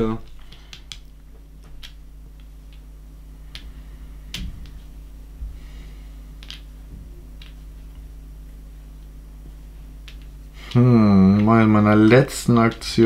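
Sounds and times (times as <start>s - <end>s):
low room hum: 0.0s - 13.0s
game pieces clicking on tabletop: 0.2s - 1.1s, 10.0s - 13.0s.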